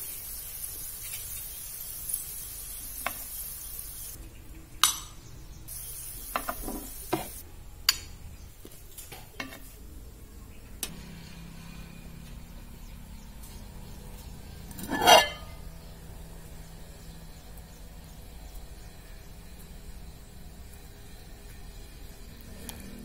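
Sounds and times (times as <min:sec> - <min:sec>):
plate scraping on wooden board: 0:06.4 - 0:07.3, 0:14.8 - 0:15.5.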